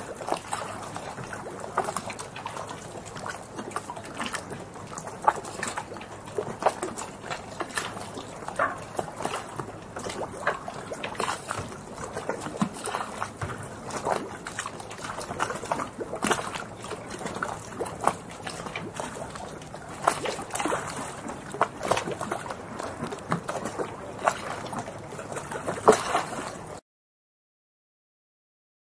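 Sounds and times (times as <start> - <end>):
water splashes and gurgles: 0.0 - 26.8
waves lapping and sloshing: 0.0 - 26.8.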